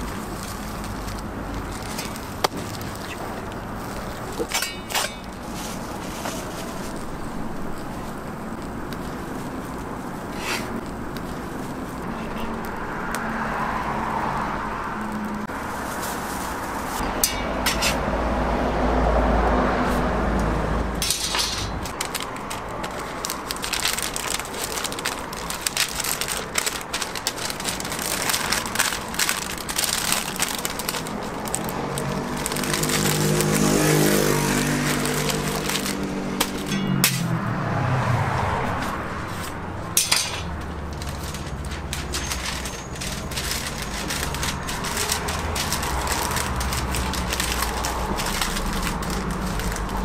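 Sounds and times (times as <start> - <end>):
paper wrapper crinkling: 0.0 - 14.4, 15.0 - 17.1, 21.2 - 36.9, 38.8 - 50.0.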